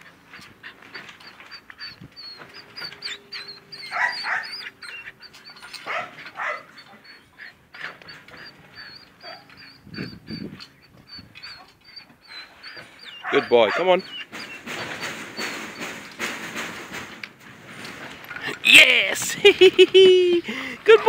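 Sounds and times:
puppy whimpering and yipping: 0:00.6 - 0:16.1
puppy crying: 0:00.7 - 0:15.9.

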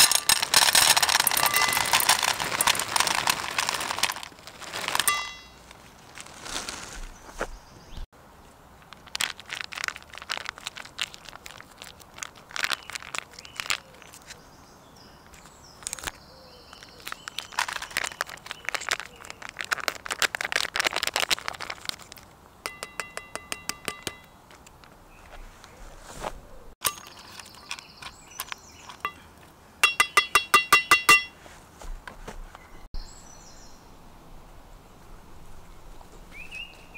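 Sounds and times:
foil pouch crinkling: 0:00.0 - 0:07.2, 0:08.8 - 0:14.4, 0:15.8 - 0:22.4.

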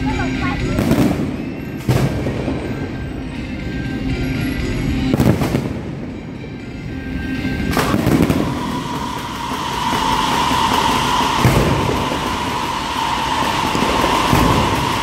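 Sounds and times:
fireworks bangs: 0:00.6 - 0:03.4, 0:05.0 - 0:06.4, 0:07.6 - 0:15.0
fireworks rising hiss: 0:07.5 - 0:15.0.

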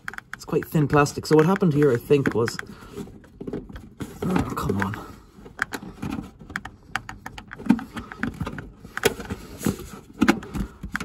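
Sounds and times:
plastic panel clicking and creaking: 0:00.0 - 0:09.4.

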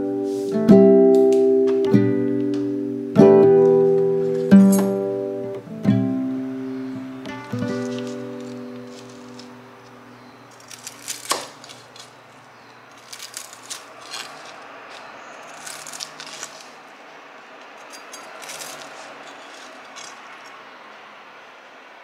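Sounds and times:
steady hiss: 0:00.0 - 0:01.6
kitchenware clinking and rattling: 0:17.8 - 0:20.6.

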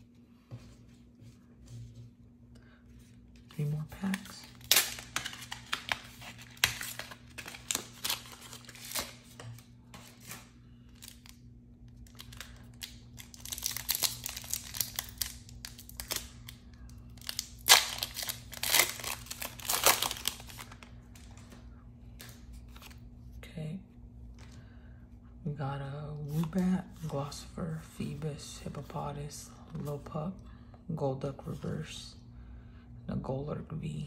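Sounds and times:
cards rustling: 0:02.9 - 0:11.4, 0:17.2 - 0:23.0
foil wrapper crinkling and tearing: 0:04.0 - 0:11.4, 0:12.0 - 0:21.0.

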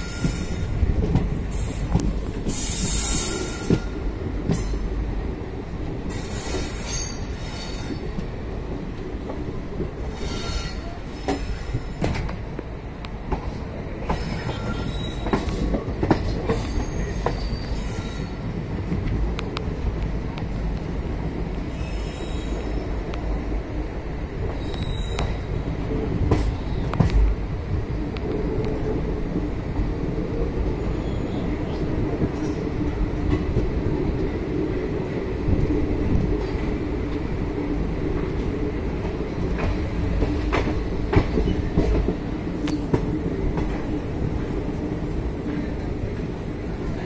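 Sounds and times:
train wheels rumbling on rails: 0:00.0 - 0:47.0
wavering wheel squeal: 0:14.2 - 0:15.5, 0:16.6 - 0:18.4, 0:21.7 - 0:22.9, 0:24.6 - 0:25.5.

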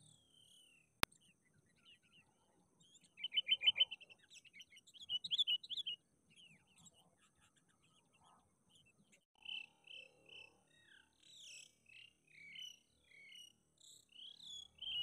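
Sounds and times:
faint bird chirps: 0:00.0 - 0:15.0
bulbuls chattering and whistling: 0:02.8 - 0:08.2, 0:14.2 - 0:15.0.

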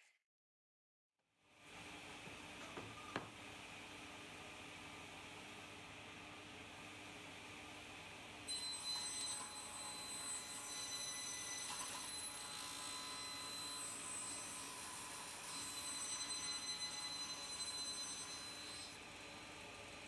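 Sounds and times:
table saw whining: 0:08.5 - 0:20.0.

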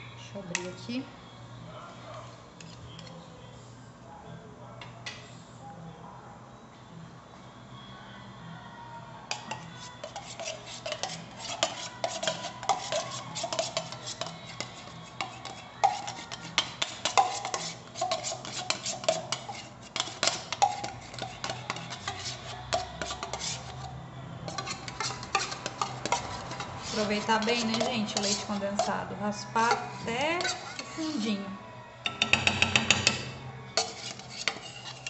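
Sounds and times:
metal spoon scraping a tin: 0:02.6 - 0:03.2, 0:09.3 - 0:31.4, 0:32.2 - 0:35.0.

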